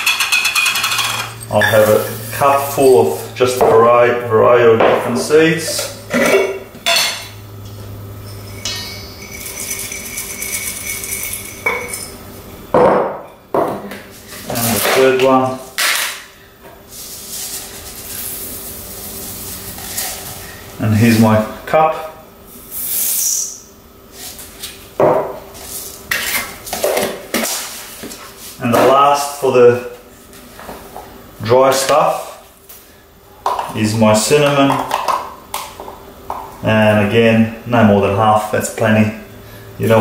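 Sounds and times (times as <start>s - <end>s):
glass clinking on metal bowl: 0.0s - 1.8s, 8.2s - 12.2s
containers knocking against bowl: 33.4s - 33.8s.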